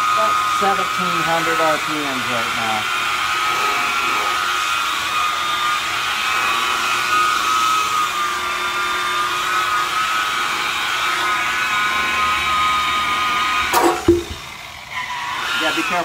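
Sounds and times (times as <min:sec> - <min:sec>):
rotary buffer whining: 0:00.0 - 0:06.4
sharp clack and thump: 0:13.7 - 0:14.5.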